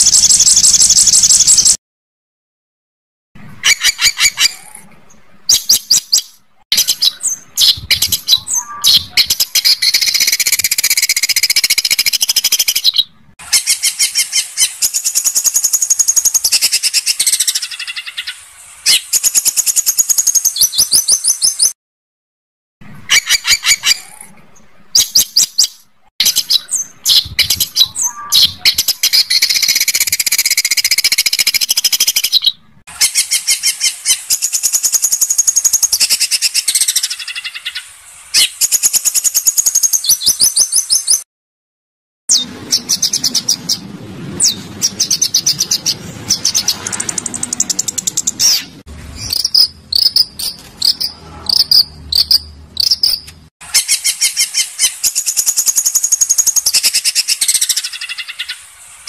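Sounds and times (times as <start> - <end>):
songbird rattling trills: 5.5 - 18.2, 25.0 - 32.4, 33.0 - 37.8, 44.8 - 58.6.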